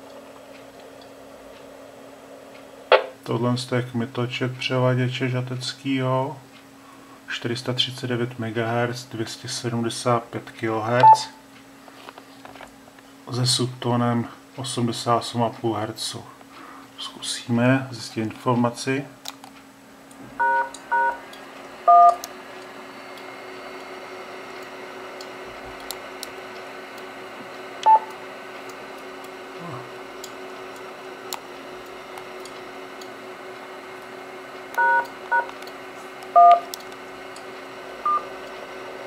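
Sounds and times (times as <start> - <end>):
keypad tone beeps: 11.0 - 11.3, 20.4 - 21.2, 21.9 - 22.2, 27.8 - 28.1, 34.8 - 35.5, 36.4 - 36.7, 38.0 - 38.3.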